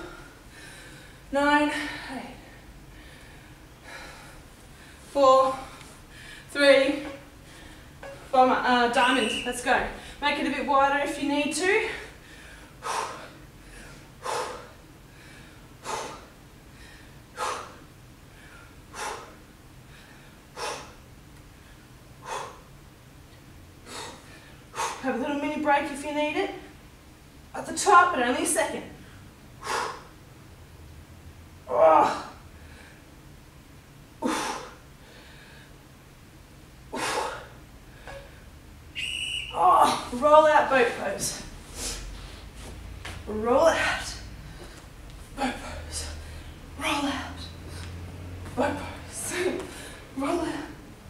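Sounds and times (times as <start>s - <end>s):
woman breathing hard: 0.0s - 8.2s, 11.8s - 22.8s, 23.8s - 25.1s, 29.0s - 30.2s, 34.2s - 35.9s, 36.9s - 38.5s, 48.8s - 50.8s.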